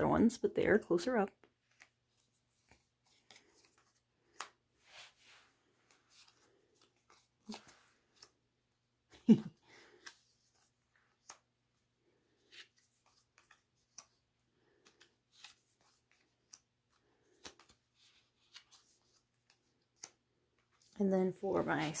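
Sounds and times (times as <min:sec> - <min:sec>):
photo cards clicking on pile: 0:01.6 - 0:04.6, 0:05.7 - 0:08.4, 0:09.6 - 0:11.6, 0:12.4 - 0:20.9.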